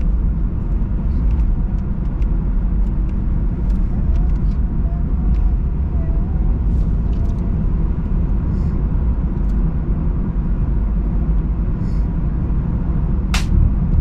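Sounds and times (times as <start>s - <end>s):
car engine: 0.0s - 14.0s
road and tyre rumble: 0.0s - 14.0s.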